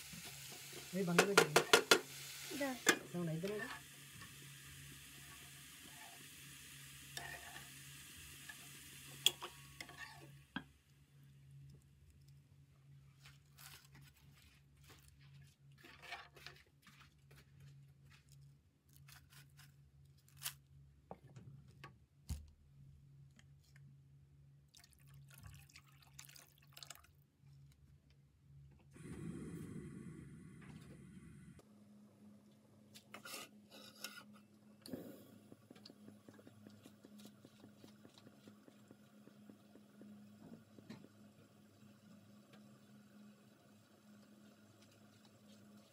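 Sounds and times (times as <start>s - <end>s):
faint sizzling hiss: 0.0s - 15.7s
steady low hum: 28.8s - 33.0s.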